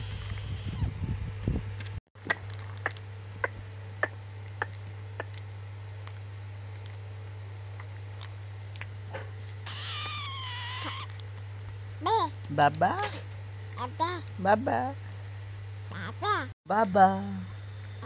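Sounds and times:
steady low hum: 0:00.0 - 0:18.0
baby squealing: 0:09.7 - 0:11.1, 0:15.9 - 0:16.5.

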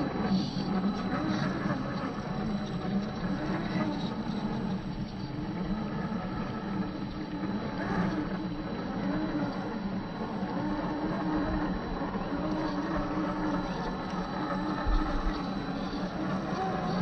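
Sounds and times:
electric motor whine: 0:00.0 - 0:17.0.

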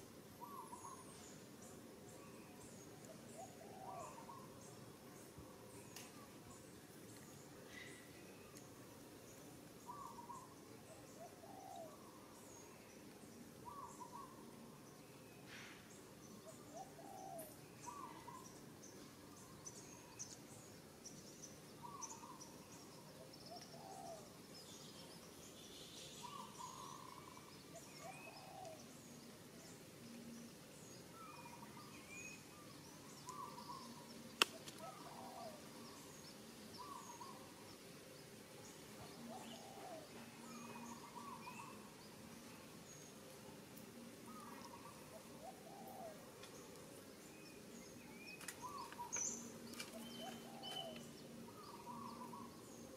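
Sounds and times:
small birds chirping: 0:00.0 - 0:52.9
sharp click: 0:34.4 - 0:34.8.

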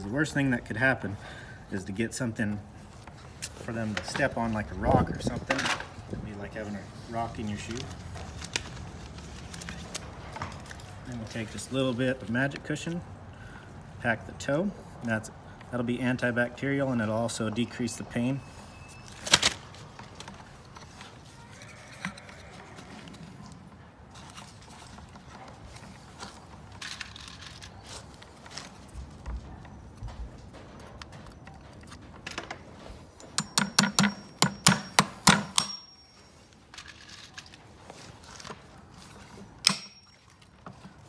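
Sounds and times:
soft handling sounds: 0:01.8 - 0:13.0, 0:17.1 - 0:33.4, 0:35.8 - 0:41.0
hammer striking horseshoe nail: 0:33.2 - 0:36.2, 0:39.6 - 0:40.2.

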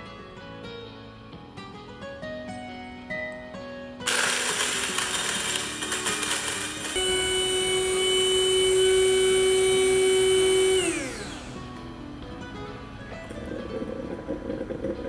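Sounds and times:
coffee grinder grinding beans: 0:04.0 - 0:11.9.

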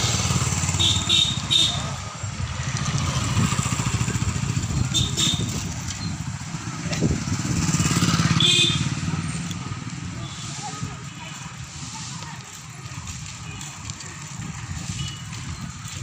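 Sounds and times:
motorcycle engine running: 0:00.0 - 0:11.7.

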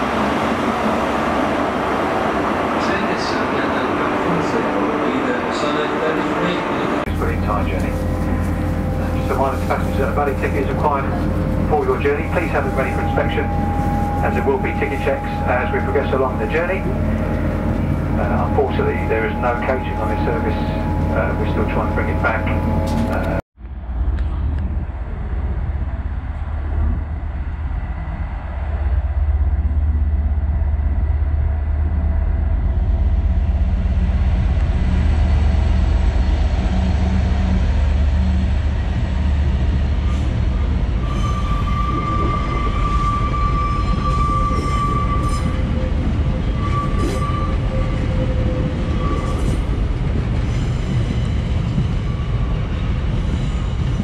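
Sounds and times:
diesel locomotive engine rumble: 0:00.0 - 0:54.0
train wheels squealing on rails: 0:02.8 - 0:23.4, 0:40.0 - 0:54.0.

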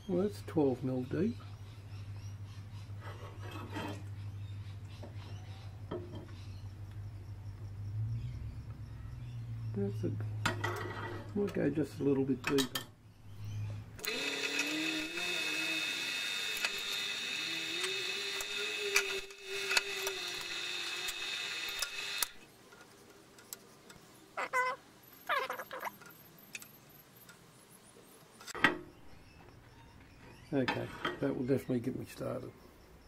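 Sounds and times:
drill press motor whine: 0:14.0 - 0:22.4.

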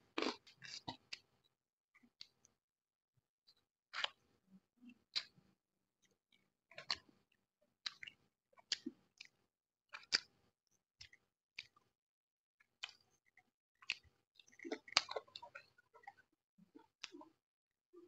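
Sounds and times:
chewing and wet mouth smacks: 0:00.2 - 0:01.3, 0:04.0 - 0:04.2, 0:05.1 - 0:05.4, 0:06.8 - 0:07.1, 0:07.8 - 0:10.3, 0:11.0 - 0:11.8, 0:12.8 - 0:17.3.

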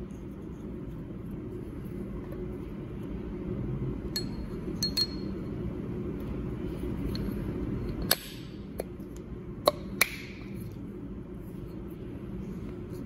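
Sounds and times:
steady low hum: 0:00.0 - 0:13.0
steel collar clinking on shaft: 0:04.2 - 0:05.3.

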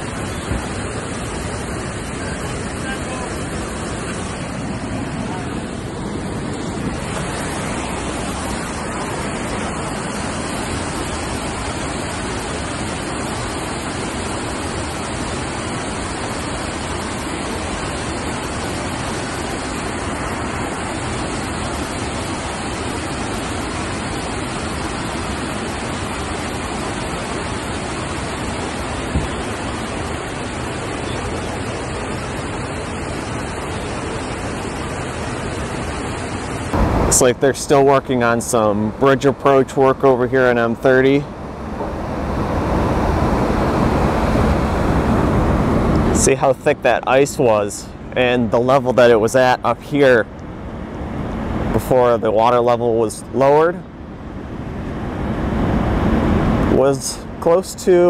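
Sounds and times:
water rushing through spillway: 0:00.0 - 0:58.0.

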